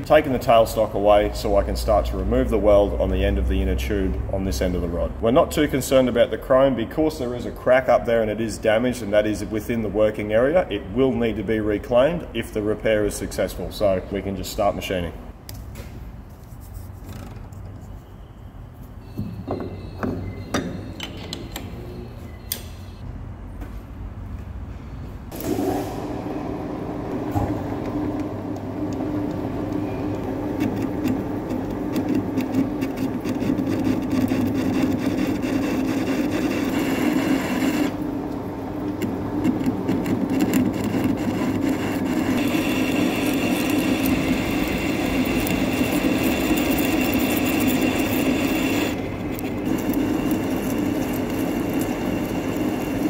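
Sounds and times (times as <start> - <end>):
lathe spindle running: 25.4 - 53.0
lathe tool cutting metal: 30.6 - 38.0, 39.0 - 53.0.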